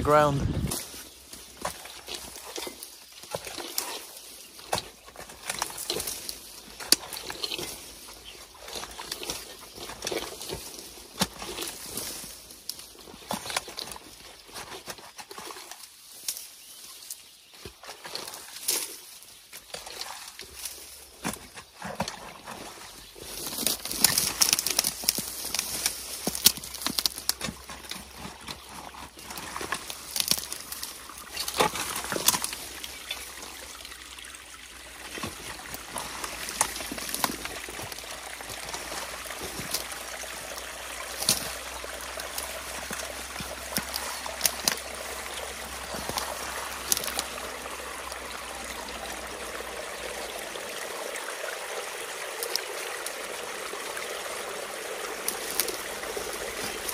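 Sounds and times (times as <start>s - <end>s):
water splashes: 0.0s - 16.2s, 17.6s - 56.9s
water trickling and running: 0.1s - 56.9s
rake tearing into mud and reeds: 1.6s - 12.4s, 19.6s - 33.2s, 35.0s - 48.7s, 55.1s - 56.9s.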